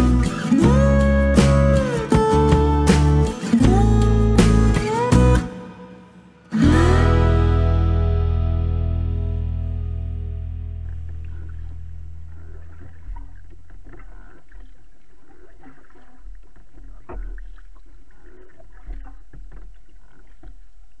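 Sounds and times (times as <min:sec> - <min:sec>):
steady low rumble: 0:06.6 - 0:14.3
water swishing along hull: 0:10.8 - 0:21.0
paddle splashing through water: 0:11.0 - 0:20.8.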